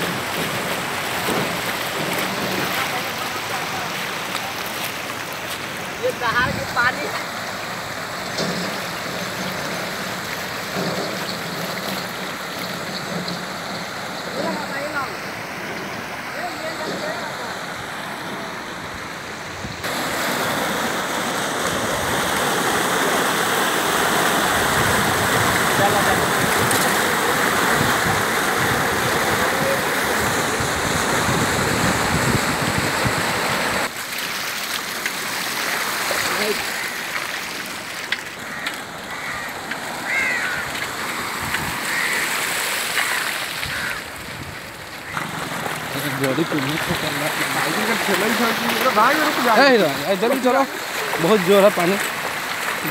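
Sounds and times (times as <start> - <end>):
floodwater rushing: 0.0 - 52.9
bird calling: 38.4 - 41.0, 41.8 - 44.2.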